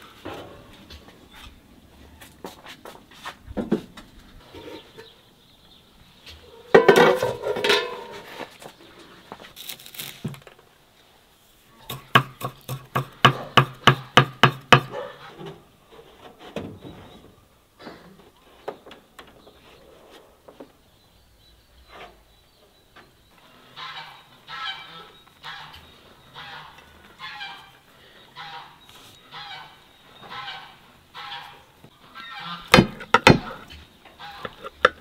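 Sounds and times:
metal lid clanking: 6.7s - 8.2s.

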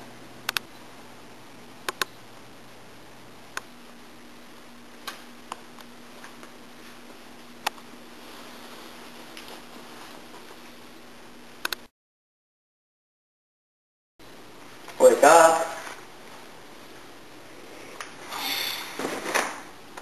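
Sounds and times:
faint steady hum: 0.0s - 11.9s, 14.2s - 20.0s
sharp clicks: 0.5s - 0.7s, 1.8s - 2.2s, 11.6s - 11.9s.

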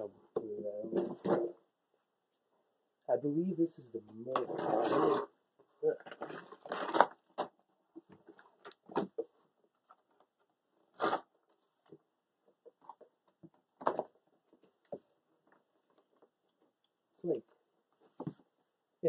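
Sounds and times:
cardboard packaging tearing: 4.4s - 5.3s, 6.0s - 7.5s, 10.9s - 11.3s.

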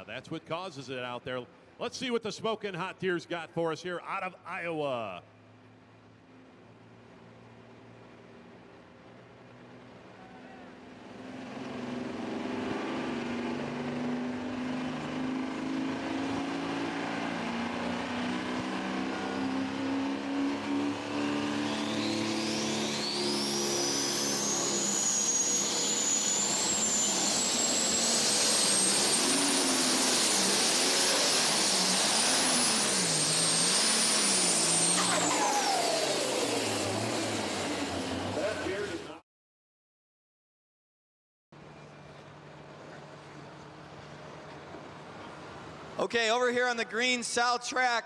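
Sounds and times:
high turbo whistle: 15.2s - 38.8s.

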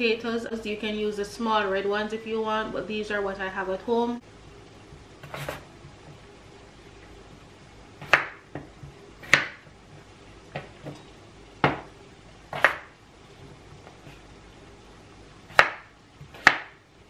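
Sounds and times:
knife chopping on plastic board: 5.2s - 5.6s, 8.0s - 9.7s, 11.6s - 11.9s, 12.5s - 12.9s, 15.5s - 16.8s.

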